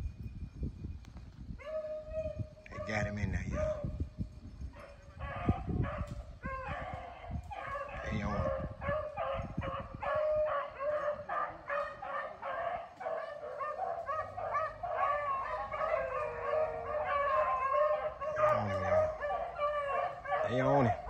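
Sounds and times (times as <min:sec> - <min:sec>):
dogs baying and yelping: 0:04.7 - 0:21.0.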